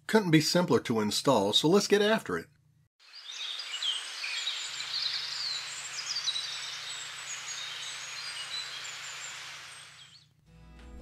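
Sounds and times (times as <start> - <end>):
steady outdoor hiss: 3.0 - 10.2
small birds chirping: 3.0 - 10.3.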